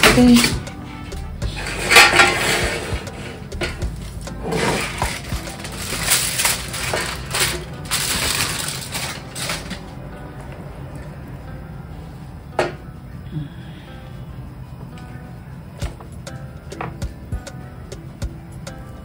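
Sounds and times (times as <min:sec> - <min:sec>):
aluminium foil crinkling: 0:04.5 - 0:09.9.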